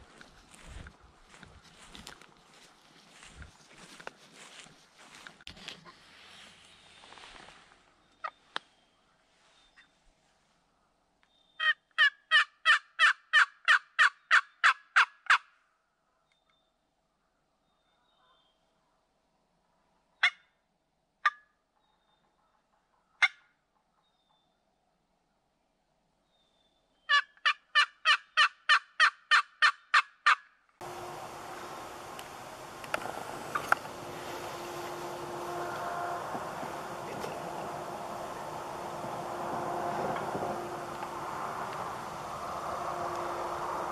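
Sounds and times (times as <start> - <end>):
turkey yelps: 11.6 - 15.4, 27.1 - 30.4
steady hiss: 30.8 - 43.9.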